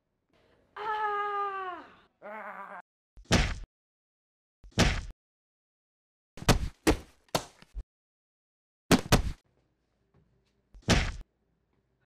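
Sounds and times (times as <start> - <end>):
punch sound effects: 3.3 - 3.7, 4.7 - 5.1, 10.8 - 11.2.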